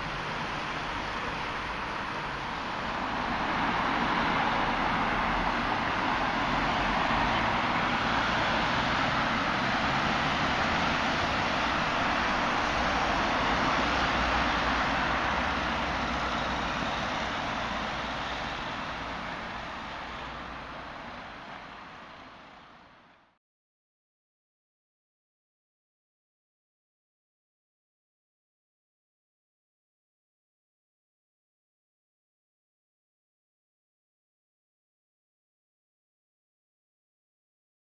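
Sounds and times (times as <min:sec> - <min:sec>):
road traffic noise: 0:00.0 - 0:23.4.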